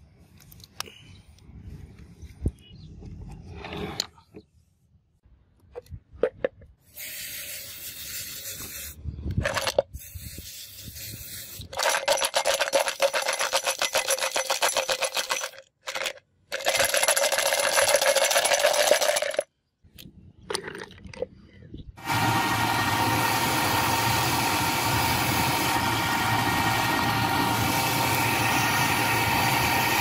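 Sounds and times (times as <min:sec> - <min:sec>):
aerosol spray can hissing: 0:06.9 - 0:09.0, 0:09.9 - 0:11.9
metal parts clinking: 0:11.6 - 0:19.4.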